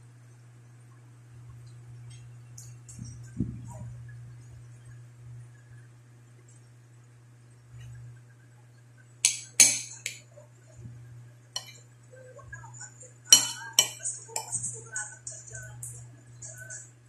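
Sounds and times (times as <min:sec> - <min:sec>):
faint low hum: 0:00.0 - 0:17.0
dishes clinking: 0:09.3 - 0:10.2, 0:11.6 - 0:11.8, 0:13.3 - 0:14.6.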